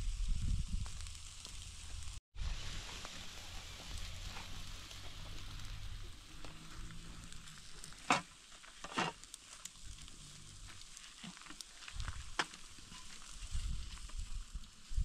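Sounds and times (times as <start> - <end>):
meat sizzling over charcoal: 0.0 - 15.0
skewers clicking and scraping: 3.0 - 14.8.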